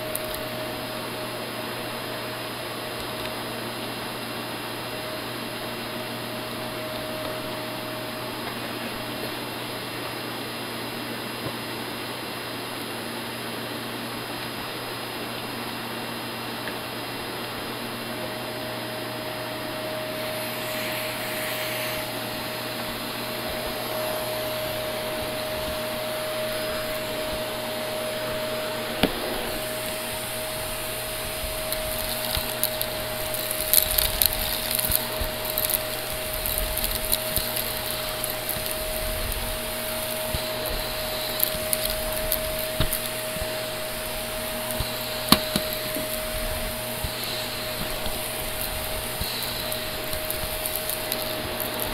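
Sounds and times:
vacuum cleaner running on carpet: 0:00.0 - 0:51.9.

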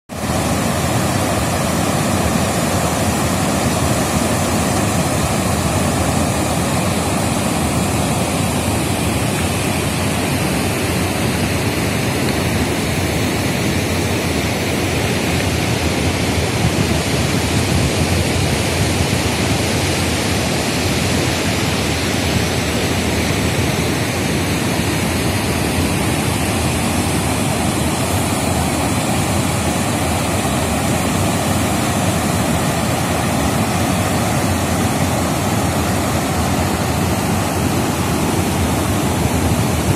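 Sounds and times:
white water rushing through weir: 0:00.1 - 0:39.9.

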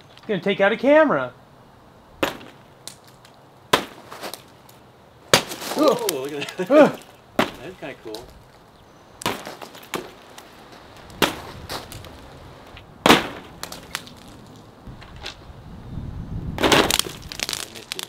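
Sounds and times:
ice balls hitting fabric tent: 0:02.2 - 0:03.1, 0:03.7 - 0:04.5, 0:05.3 - 0:08.3, 0:09.2 - 0:10.4, 0:11.1 - 0:12.2, 0:13.0 - 0:14.4, 0:16.6 - 0:18.0.

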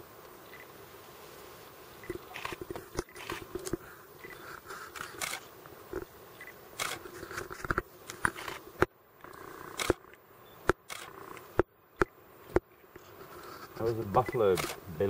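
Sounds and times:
camera shutter clicks: 0:02.1 - 0:03.8, 0:04.9 - 0:05.4, 0:06.4 - 0:07.5, 0:08.1 - 0:08.6, 0:09.8 - 0:10.0, 0:10.6 - 0:11.4, 0:14.2 - 0:14.8
low rustling and crackle: 0:12.5 - 0:15.0.

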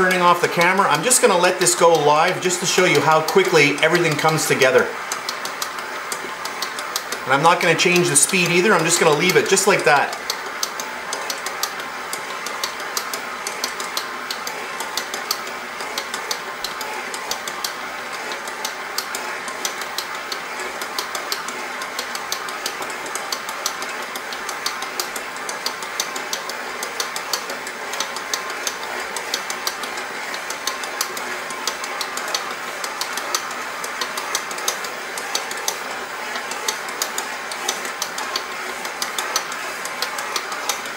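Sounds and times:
stand mixer kneading dough: 0:00.0 - 0:40.9.

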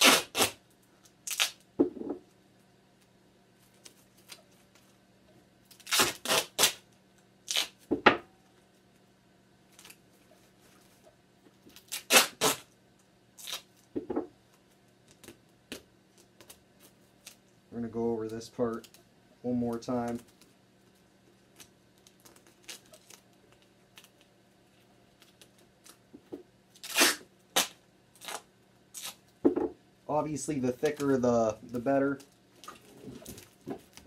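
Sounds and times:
duct tape ripping: 0:00.0 - 0:00.6, 0:01.2 - 0:01.6, 0:05.7 - 0:06.8, 0:07.4 - 0:07.9, 0:11.7 - 0:12.8, 0:13.4 - 0:13.9, 0:21.5 - 0:24.3, 0:26.7 - 0:29.2
faint steady hum: 0:00.0 - 0:34.0.

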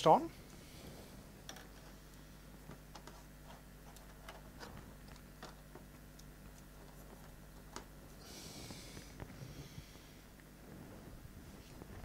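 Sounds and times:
faint clicks and knocks: 0:01.4 - 0:09.4.

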